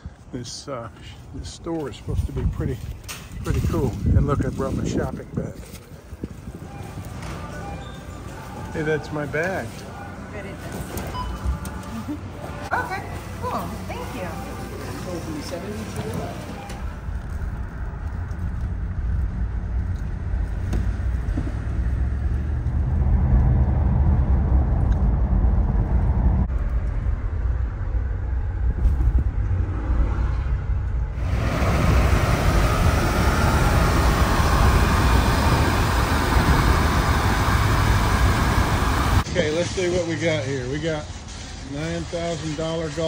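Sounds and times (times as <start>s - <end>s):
car engine and road rumble: 12.2s - 43.0s
loud rushing hiss: 31.2s - 43.0s.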